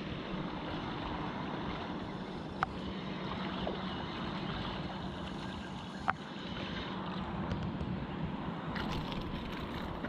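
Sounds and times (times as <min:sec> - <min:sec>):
river water flowing: 0:08.5 - 0:10.0.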